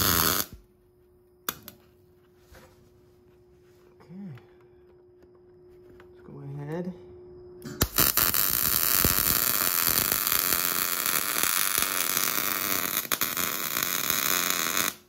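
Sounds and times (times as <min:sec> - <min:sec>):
welding arc hissing and popping: 0:00.0 - 0:00.6, 0:07.8 - 0:15.0.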